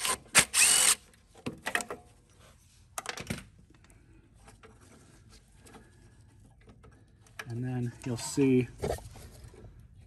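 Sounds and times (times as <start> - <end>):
cordless drill running: 0.0 - 1.0.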